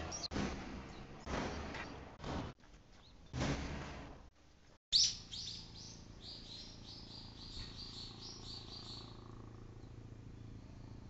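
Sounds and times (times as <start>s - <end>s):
distant helicopter drone: 5.8s - 11.0s.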